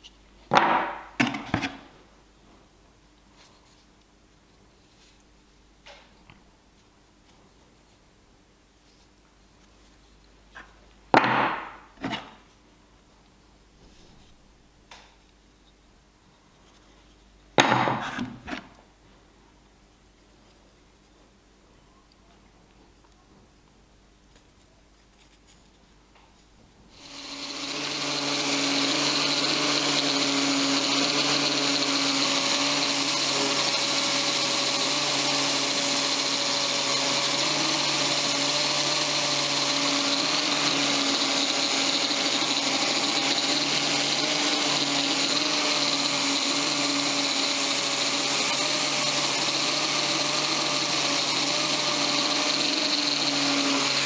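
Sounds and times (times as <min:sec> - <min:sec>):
electric orbital sander running: 0:27.0 - 0:54.0.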